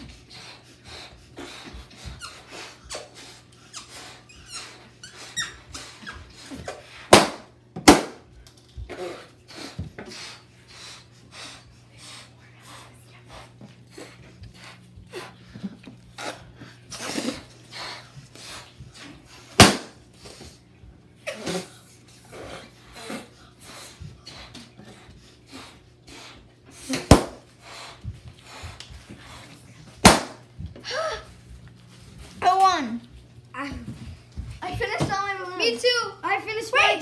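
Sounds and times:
balloon pops: 7.1s - 8.2s, 19.6s - 20.0s, 26.9s - 27.4s, 30.0s - 30.4s
puffs of breath: 8.9s - 18.7s, 21.4s - 29.6s.

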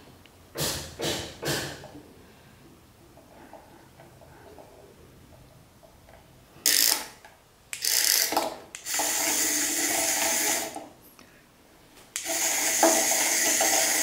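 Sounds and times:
small toy motor whirring: 6.7s - 7.1s, 7.8s - 10.8s, 12.2s - 14.0s.

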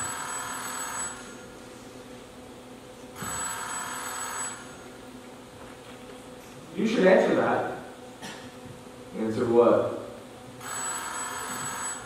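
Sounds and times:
telephone ringing: 0.0s - 1.4s, 3.2s - 4.8s, 10.6s - 12.0s.

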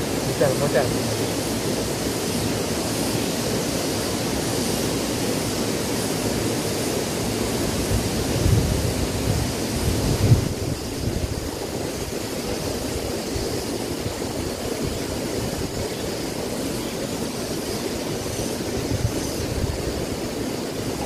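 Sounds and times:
river cascade rushing: 0.0s - 21.0s
wind rumble on microphone: 7.7s - 16.6s, 17.8s - 21.0s.

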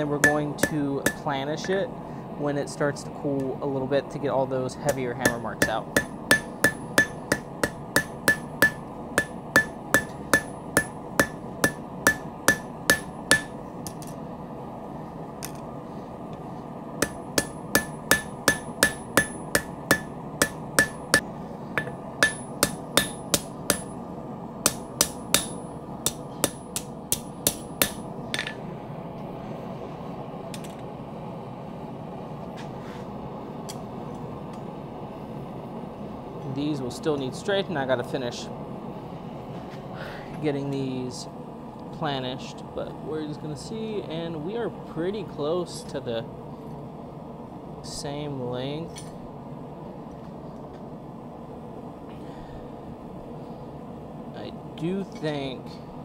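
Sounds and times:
hammer striking steel on anvil: 0.0s - 1.8s, 4.8s - 14.2s, 17.0s - 24.0s, 24.6s - 28.6s
steady background hum: 0.0s - 56.0s.

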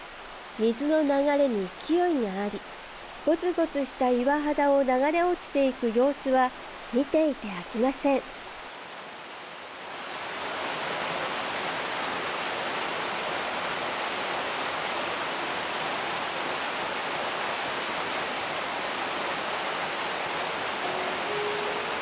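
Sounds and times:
waterfall rushing: 0.0s - 22.0s.

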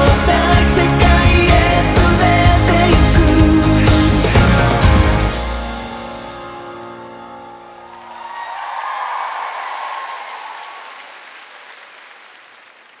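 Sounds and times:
concert crowd cheering and screaming: 7.4s - 11.6s.

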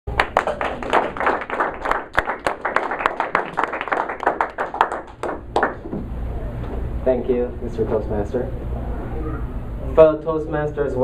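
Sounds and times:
small audience applauding: 0.1s - 5.9s.

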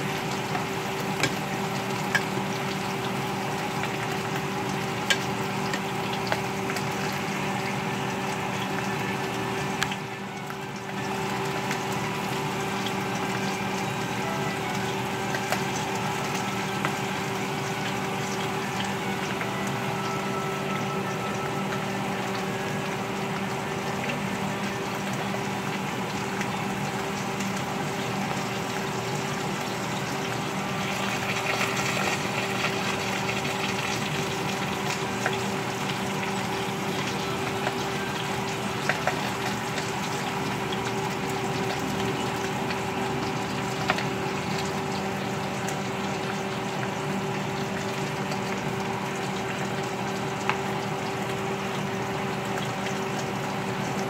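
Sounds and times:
potato slices sizzling in oil: 0.0s - 54.0s.

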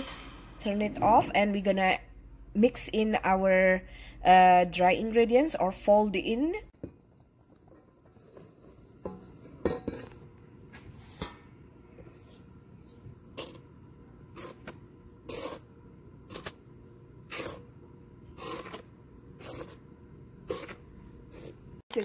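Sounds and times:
spatula scraping mixing bowl: 14.3s - 15.7s, 17.2s - 21.8s.

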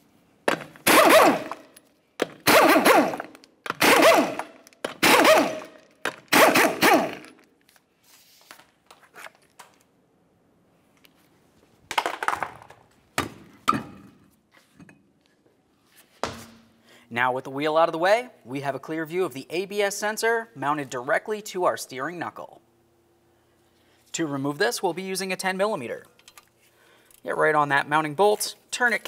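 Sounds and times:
impact wrench rattling: 0.5s - 7.5s.

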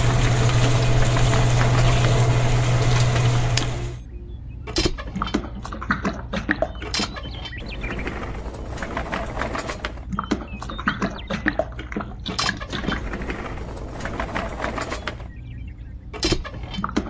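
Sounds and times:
small electric motor humming: 0.0s - 4.0s
wet concrete pouring: 0.0s - 4.0s.

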